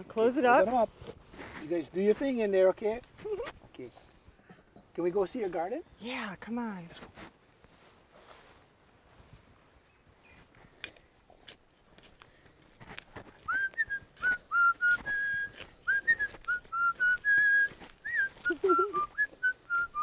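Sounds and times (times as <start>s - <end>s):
person whistling a tune: 13.4s - 20.0s.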